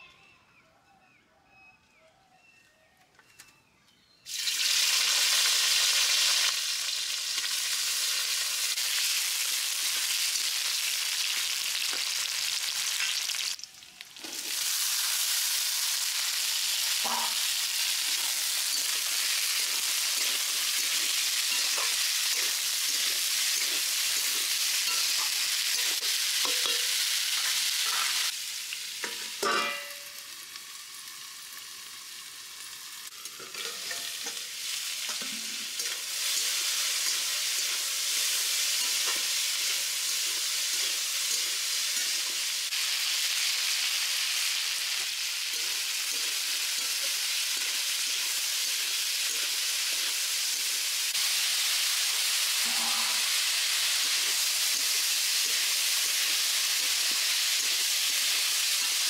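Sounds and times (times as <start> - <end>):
vegetables sizzling in hot oil: 4.3 - 59.0
steel spatula scraping pan: 18.1 - 28.1, 45.5 - 50.8, 52.5 - 59.0.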